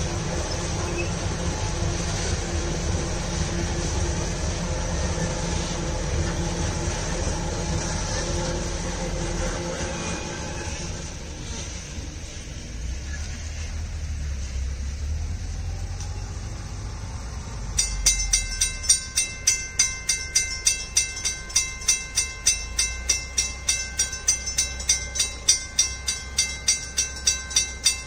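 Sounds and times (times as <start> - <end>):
train rumbling past: 0.0 - 28.0
level-crossing warning bell: 17.5 - 28.0.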